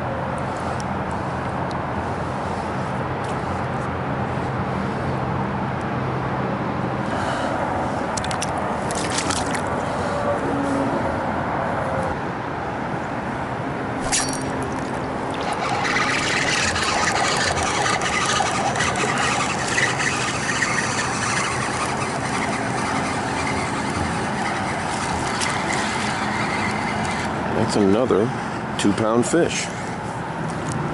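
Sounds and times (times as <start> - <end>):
wind: 0.0 - 30.9
water noise: 7.9 - 10.2, 13.8 - 27.5.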